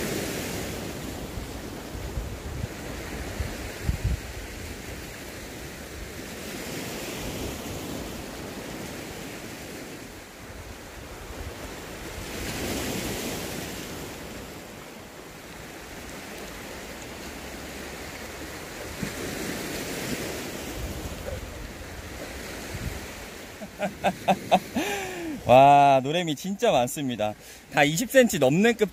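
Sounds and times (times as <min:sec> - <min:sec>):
sea waves washing onto shore: 0:00.0 - 0:28.9
wind buffeting microphone: 0:02.0 - 0:04.5, 0:18.9 - 0:23.4.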